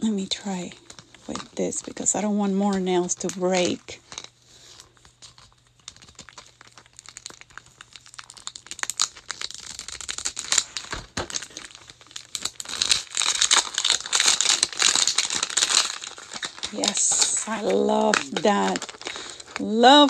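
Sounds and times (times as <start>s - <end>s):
plastic wrap crinkling: 0.0s - 20.0s
knife slitting plastic wrap: 5.3s - 20.0s.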